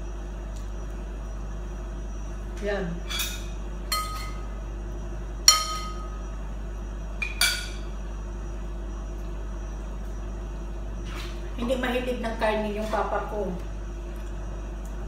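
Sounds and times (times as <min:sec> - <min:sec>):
metal spoon clinking on ceramic bowl: 0:03.1 - 0:04.4, 0:05.5 - 0:06.1.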